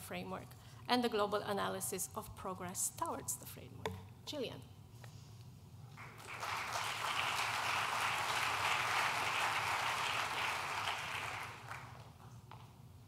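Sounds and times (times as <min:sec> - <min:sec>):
audience applauding: 0:06.0 - 0:12.1.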